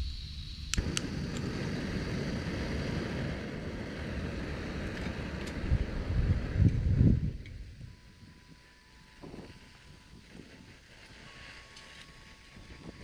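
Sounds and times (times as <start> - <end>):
gas burner running: 0.0 - 13.0
stove igniter clicks: 0.7 - 1.5.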